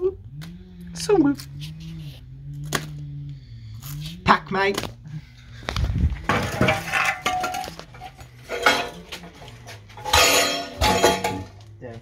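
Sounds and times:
metal objects clinking: 6.3 - 11.7.

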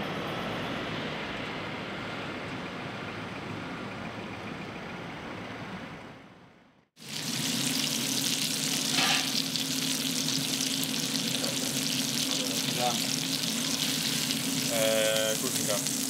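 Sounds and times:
oil sizzling in a frying pan: 7.0 - 16.0.

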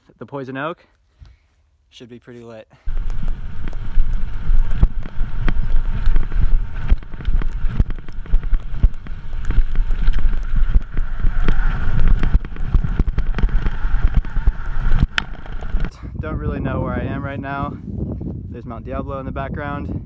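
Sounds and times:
bike rattling over rough ground: 2.9 - 15.9
wind buffeting microphone: 2.9 - 20.0.

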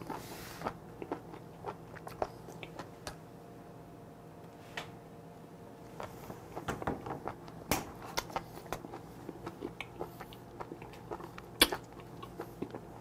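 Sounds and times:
chewing with clicks and smacks: 0.0 - 3.2, 5.8 - 13.0.

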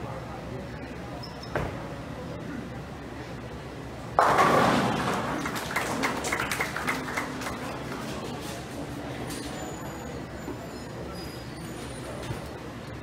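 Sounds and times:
bowling alley background noise: 0.0 - 13.0
bowling ball crashing into pins: 4.2 - 6.1.

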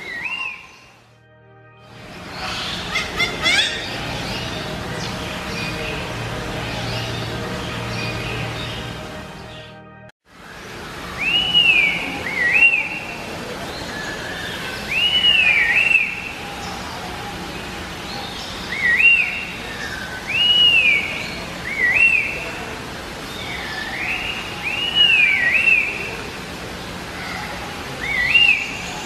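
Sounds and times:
bird singing whistled phrases: 0.0 - 1.0, 11.2 - 13.1, 14.0 - 16.3, 18.7 - 19.5, 20.2 - 22.4, 23.7 - 26.0, 28.0 - 29.0.

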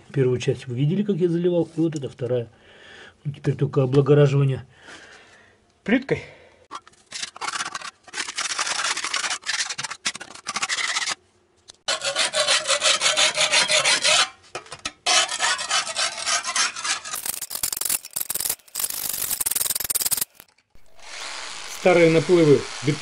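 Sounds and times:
putty knife scraping concrete: 6.7 - 11.2, 11.8 - 20.9.

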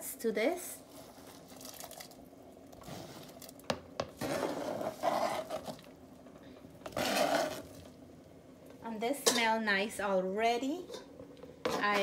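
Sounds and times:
onions scraped off cutting board: 4.2 - 5.9, 6.9 - 7.8.

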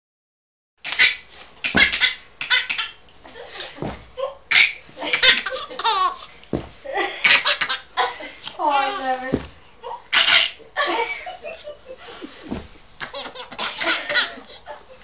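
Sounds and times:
baby laughing: 0.8 - 3.0, 4.2 - 6.3, 7.1 - 8.1, 9.8 - 10.6, 12.5 - 15.0.

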